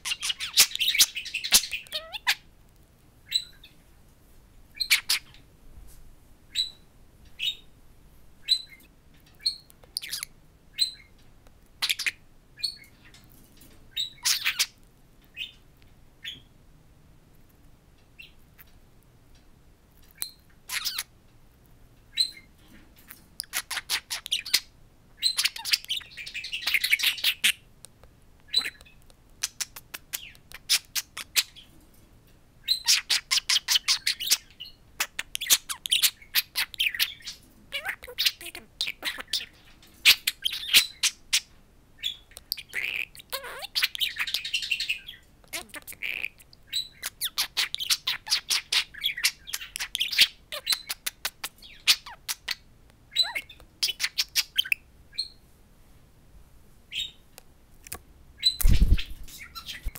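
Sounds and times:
budgerigar chirping and chattering: 0.0s - 2.5s, 3.3s - 3.7s, 4.8s - 5.4s, 6.5s - 6.8s, 7.4s - 7.7s, 8.4s - 11.1s, 11.8s - 13.2s, 13.9s - 15.6s, 20.1s - 21.1s, 22.1s - 22.5s, 23.1s - 27.7s, 28.4s - 31.7s, 32.6s - 55.4s, 56.9s - 57.2s, 58.4s - 59.9s
budgerigar sharp clicks: 26.8s - 31.4s.

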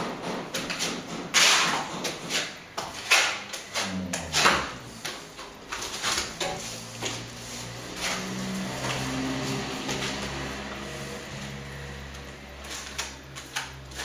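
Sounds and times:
trowel scraping on plaster hawk: 0.7s - 4.9s.

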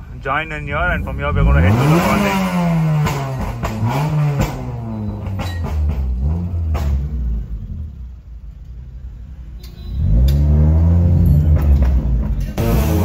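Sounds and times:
engine revving: 0.6s - 7.9s, 10.0s - 13.0s.

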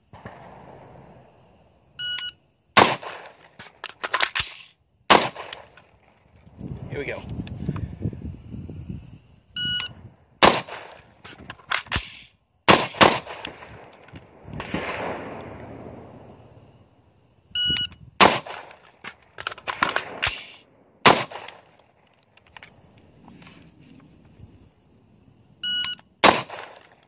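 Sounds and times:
rifle shots: 0.1s - 0.9s, 2.8s - 6.0s, 10.4s - 16.2s, 18.2s - 21.8s, 26.2s - 27.0s
shot timer beeping: 9.6s - 10.0s, 17.6s - 18.0s, 25.6s - 26.1s.

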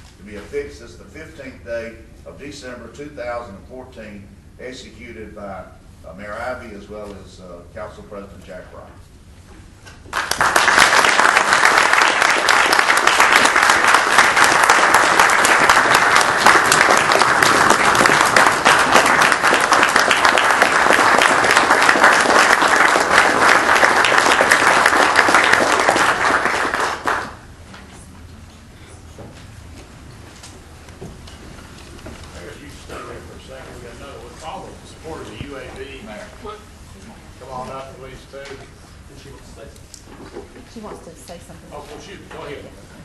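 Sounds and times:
audience applauding: 10.1s - 27.5s.

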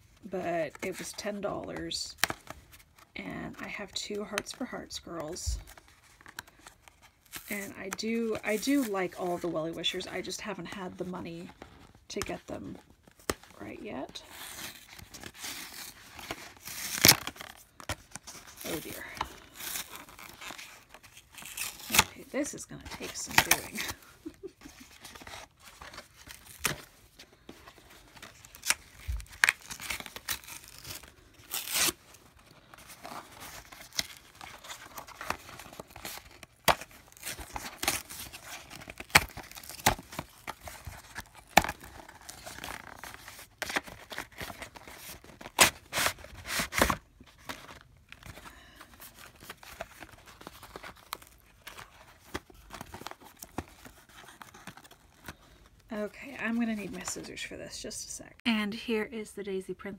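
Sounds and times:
cardboard tearing: 14.2s - 55.6s.

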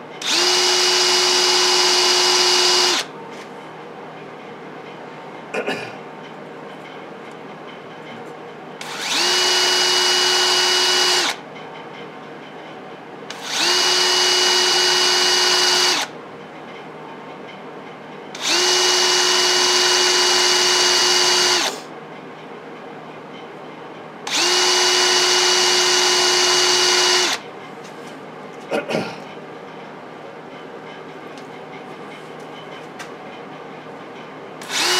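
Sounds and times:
rotary tool high whine: 0.2s - 3.1s, 8.8s - 11.4s, 13.3s - 16.2s, 18.4s - 21.9s, 24.2s - 27.4s, 34.6s - 34.9s.

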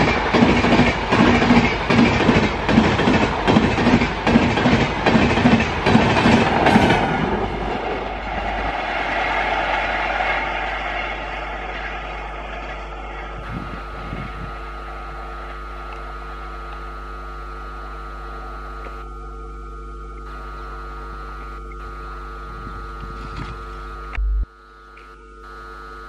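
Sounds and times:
train wheel and rail noise: 0.0s - 19.0s
faint steady multi-tone hum: 7.0s - 26.0s.

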